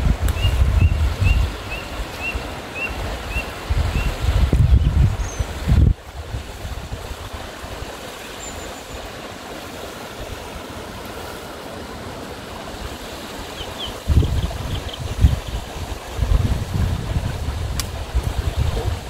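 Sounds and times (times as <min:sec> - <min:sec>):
wind buffeting microphone: 0:00.0 - 0:07.7, 0:14.0 - 0:19.0
river water rushing over rocks: 0:00.0 - 0:19.0.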